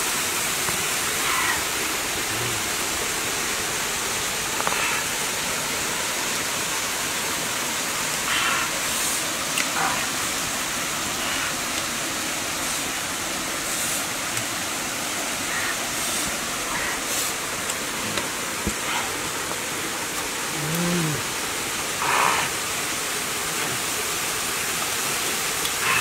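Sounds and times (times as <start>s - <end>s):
waterfall rushing: 0.0s - 26.0s
voice-like hum: 2.2s - 2.8s, 20.5s - 21.3s, 23.4s - 23.9s.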